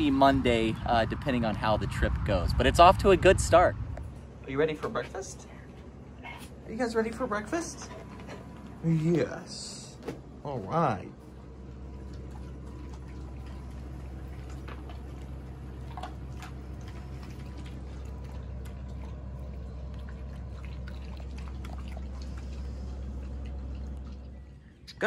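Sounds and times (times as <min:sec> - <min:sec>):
steady low hum: 0:00.0 - 0:25.0
dogs lapping from metal bowls: 0:11.1 - 0:25.0.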